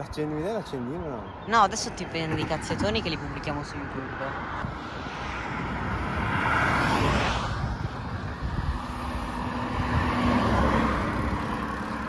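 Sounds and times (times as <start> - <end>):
road traffic passing: 0.0 - 12.0
wind noise on microphone: 4.4 - 12.0.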